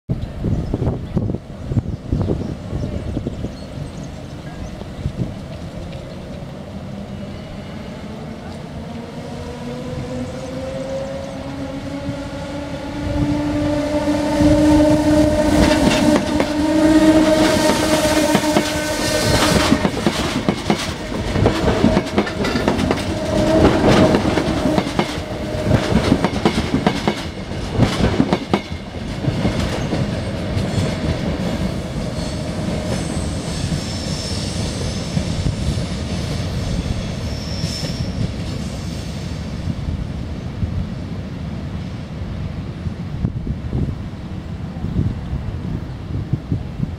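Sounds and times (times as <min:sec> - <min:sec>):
electric train whine: 0:00.1 - 0:46.9
low rumble of train: 0:00.1 - 0:46.9
train wheels clicking over rail joints: 0:15.5 - 0:33.9.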